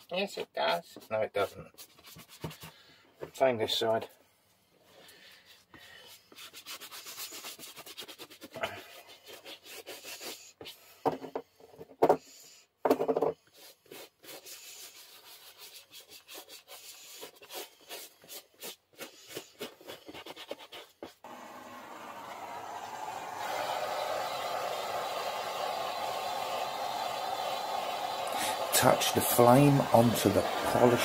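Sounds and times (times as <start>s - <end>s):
brush scrubbing leather boots: 6.2s - 10.6s, 13.5s - 21.3s, 28.4s - 31.0s.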